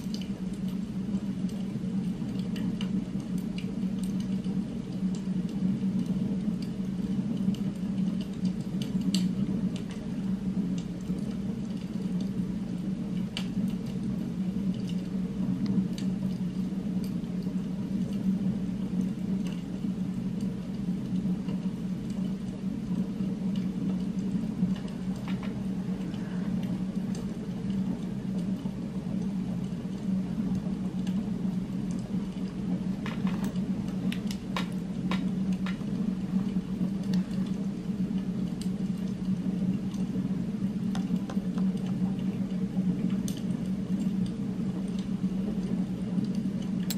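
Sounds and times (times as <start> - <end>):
low background drone: 0.0 - 46.9.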